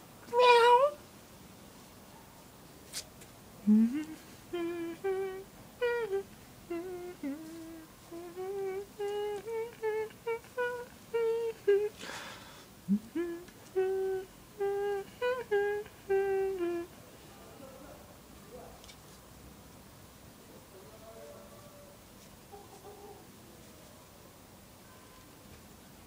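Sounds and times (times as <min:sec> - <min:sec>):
person humming: 0:03.6 - 0:17.0.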